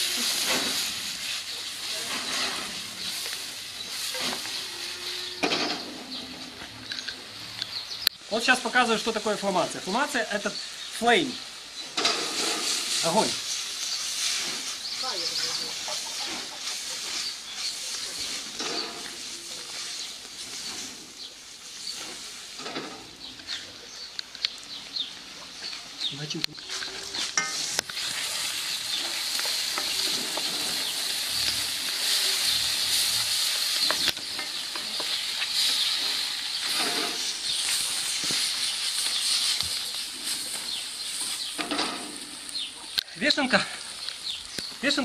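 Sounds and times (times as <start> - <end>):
food sizzling in oil: 0.0 - 6.0, 7.7 - 22.7, 26.6 - 42.9
spatula scraping and knocking pan: 27.2 - 37.3.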